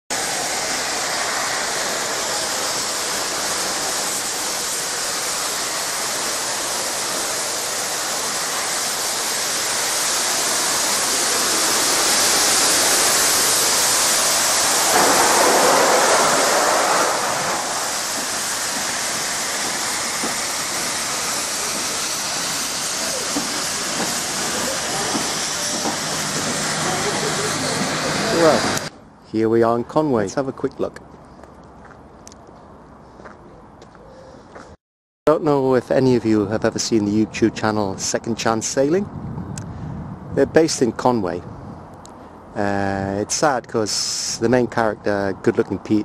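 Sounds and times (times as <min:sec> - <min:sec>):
steam train passing: 0:00.1 - 0:28.9.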